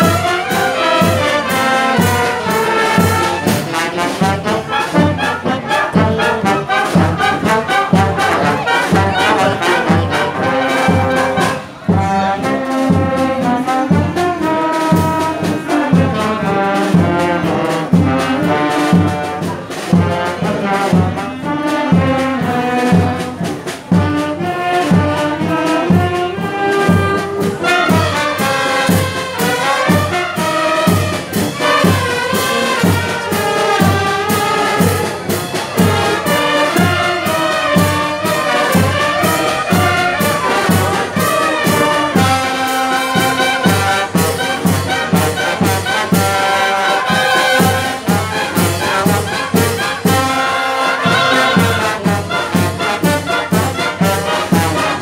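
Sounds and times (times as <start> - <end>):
brass band playing a march: 0.0 - 55.0.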